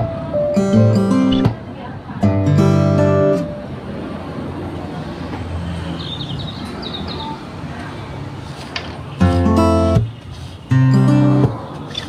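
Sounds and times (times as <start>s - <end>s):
strummed acoustic guitar: 0.0s - 1.6s, 2.2s - 3.6s, 9.2s - 10.1s, 10.7s - 12.0s.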